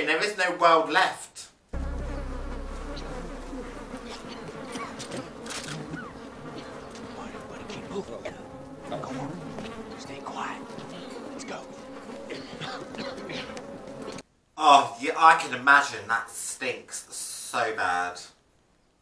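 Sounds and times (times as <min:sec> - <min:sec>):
flies buzzing: 0:01.8 - 0:14.2.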